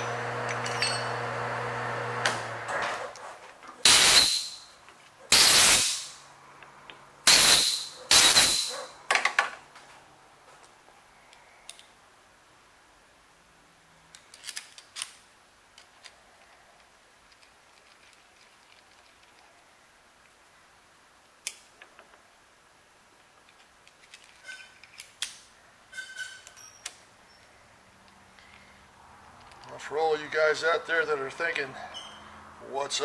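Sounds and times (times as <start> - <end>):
compressed air blasts hissing: 3.8 - 4.7, 5.3 - 6.2, 7.2 - 8.7
metal parts clicking: 6.9 - 9.5, 14.1 - 19.5, 23.4 - 28.7, 29.3 - 29.8.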